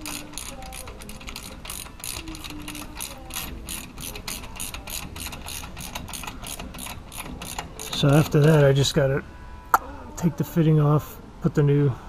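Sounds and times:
ratchet wrench clicking: 0.0 - 8.7.

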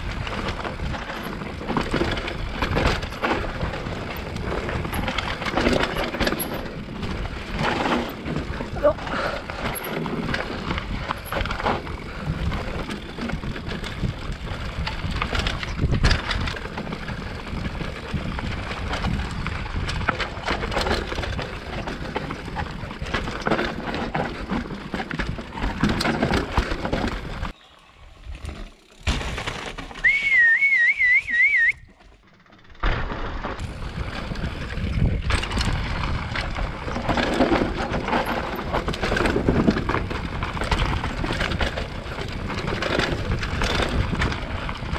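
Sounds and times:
bike rattling: 0.0 - 44.9
bike tyres on dirt: 0.0 - 44.9
warbling whistle: 30.0 - 31.9
wind on microphone: 33.6 - 37.0.

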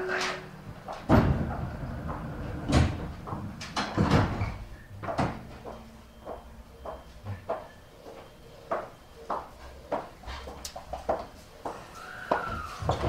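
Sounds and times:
thumps and knocks in train car: 0.9 - 5.6.

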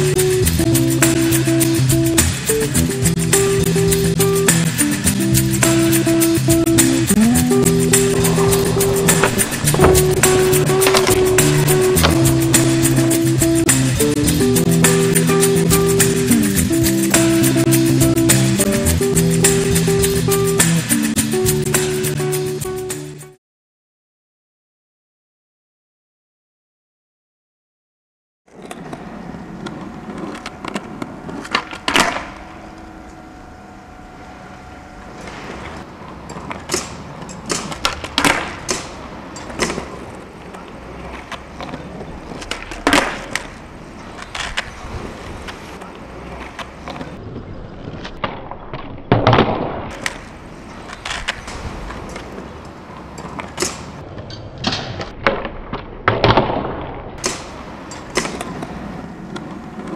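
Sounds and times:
skateboard rolling on concrete: 0.0 - 23.4, 28.5 - 56.1, 56.9 - 59.9
skateboard pops and clacks: 9.0 - 12.9, 29.6 - 32.4, 36.3 - 47.2, 47.9 - 59.9.

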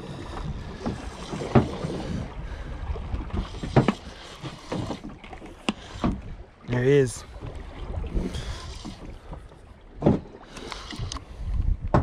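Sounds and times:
water moving against hull: 0.0 - 12.0
wind on microphone: 10.8 - 12.0.

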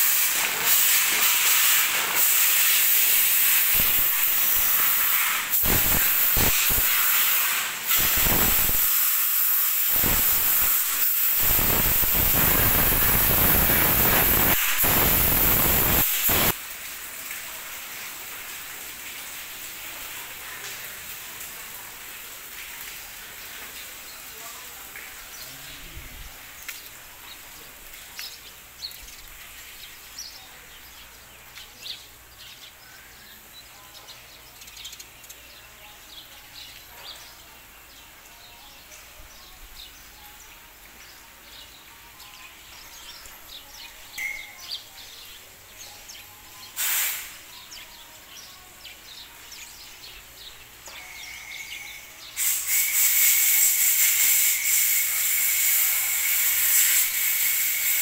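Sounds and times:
sharp noise: 0.0 - 16.6, 51.0 - 58.0
loud steady hiss with whistle: 0.0 - 21.1, 22.4 - 58.0.

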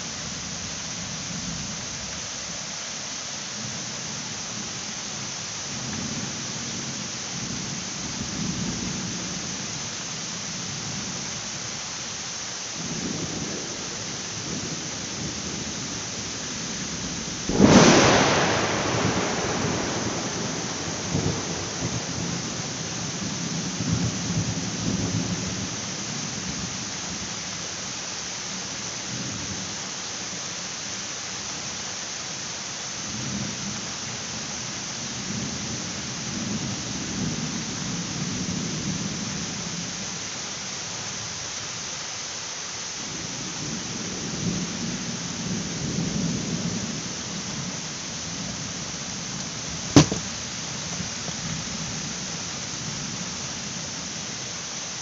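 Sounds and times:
rain hissing on grass and leaves: 0.0 - 55.0
distant thunder rolling: 17.5 - 24.5.

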